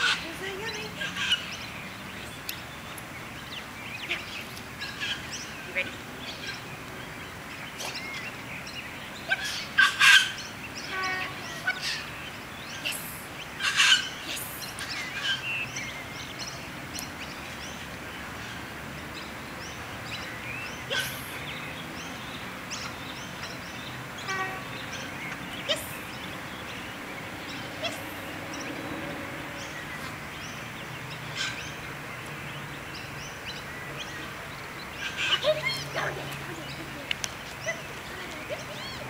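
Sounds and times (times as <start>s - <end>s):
outdoor background noise: 0.0s - 39.0s
wild birds chirping: 0.0s - 39.0s.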